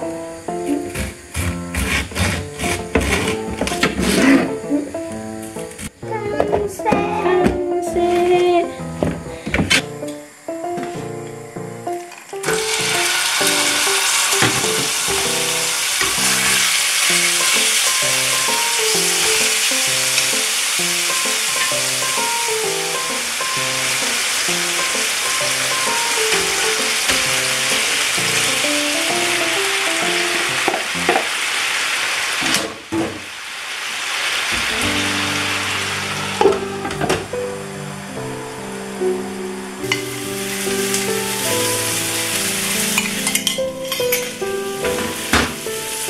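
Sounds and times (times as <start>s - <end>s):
meat sizzling in hot oil: 12.2s - 32.6s, 33.3s - 36.5s, 38.6s - 46.0s.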